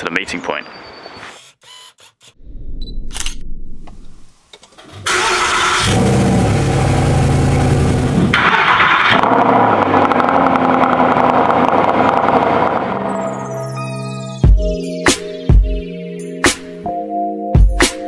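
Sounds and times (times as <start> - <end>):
car engine cold start and idle: 4.8 - 13.0.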